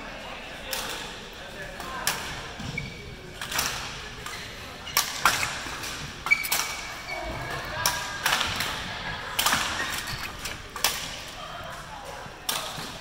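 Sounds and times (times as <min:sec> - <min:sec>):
badminton rackets hitting shuttlecock: 0:10.6 - 0:11.4.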